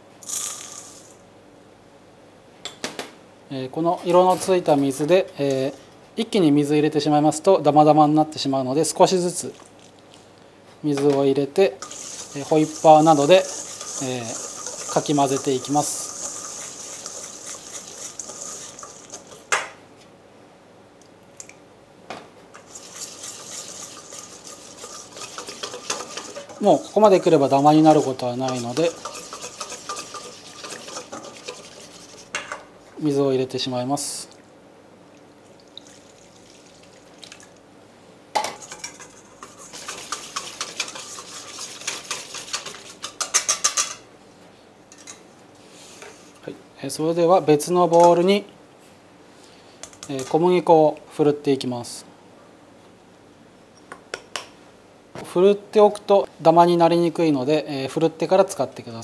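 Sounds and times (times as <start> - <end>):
wire whisk scraping metal bowl: 11.8 - 19.5, 22.6 - 32.4, 38.6 - 44.0, 50.0 - 50.4.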